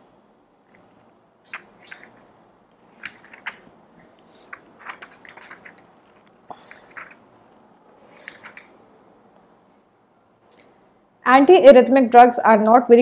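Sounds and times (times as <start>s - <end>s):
faint crinkling and clicking: 0.7s - 9.5s.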